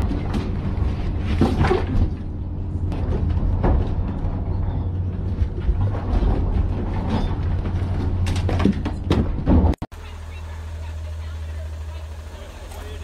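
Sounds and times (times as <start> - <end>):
boat engine droning: 0.0 - 8.5, 9.9 - 13.0
knocks and clatter: 0.0 - 9.9.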